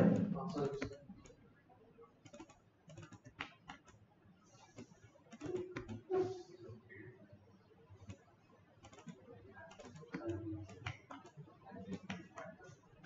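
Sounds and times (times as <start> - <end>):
computer keyboard keys clicking: 0.0 - 1.4, 2.2 - 4.0, 4.6 - 6.2, 8.8 - 13.0.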